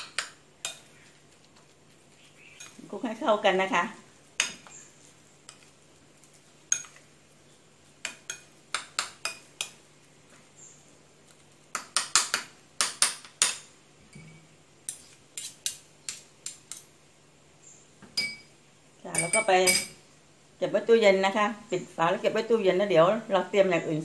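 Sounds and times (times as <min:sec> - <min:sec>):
metal spoon clinking in ceramic bowl: 0:18.2 - 0:18.5, 0:19.1 - 0:20.0.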